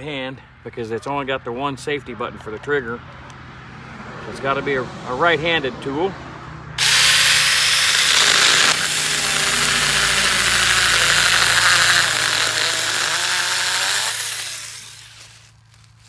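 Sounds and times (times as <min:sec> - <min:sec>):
chainsaw cutting through wood: 0:06.8 - 0:16.0.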